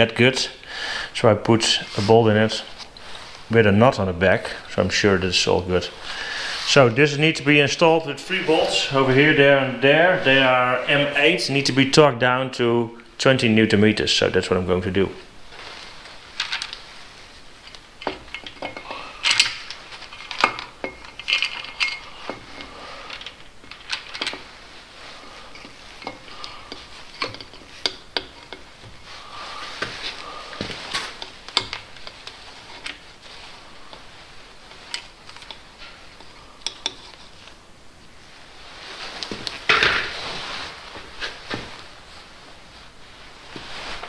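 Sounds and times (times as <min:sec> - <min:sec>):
metal tools clinking on metal: 0:18.0 - 0:24.4.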